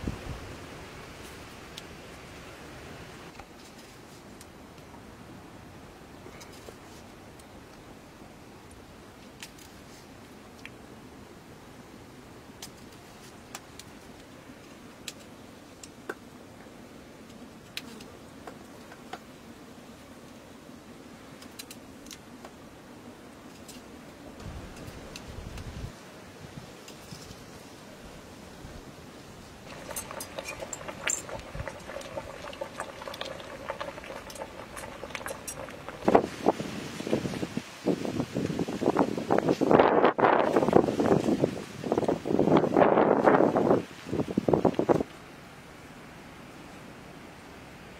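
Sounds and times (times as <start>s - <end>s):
wood fire: 12.4s - 16.6s, 21.3s - 22.6s, 23.3s - 45.2s
pot boiling with bubbling: 29.5s - 42.8s.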